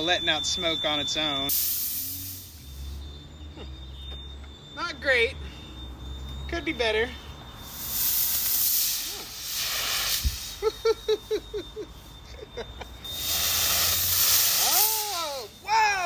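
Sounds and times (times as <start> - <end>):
fogger hissing: 0.0 - 3.3, 7.5 - 11.2, 13.0 - 16.0
short pitched chirps: 13.0 - 16.0.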